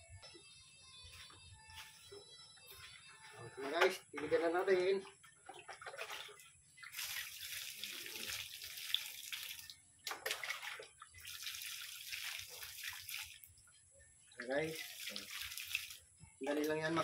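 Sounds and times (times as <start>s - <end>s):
water splashing onto soil: 5.8s - 13.5s, 14.4s - 16.8s.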